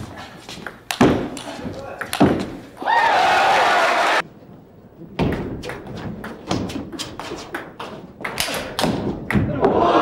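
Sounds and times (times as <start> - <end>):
spectators cheering and shouting: 2.8 - 4.2.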